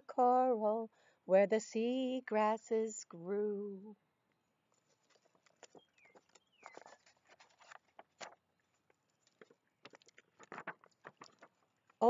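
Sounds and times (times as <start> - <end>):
book pages rustling and turning: 4.7 - 12.0.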